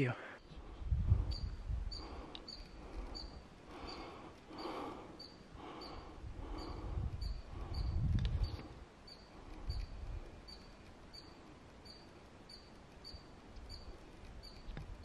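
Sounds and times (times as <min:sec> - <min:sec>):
wind buffeting microphone: 0:00.6 - 0:03.5, 0:05.6 - 0:10.5.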